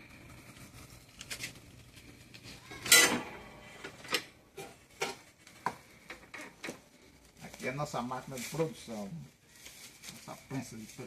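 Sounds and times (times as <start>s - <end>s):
broom fibres rustling: 3.4s - 11.0s.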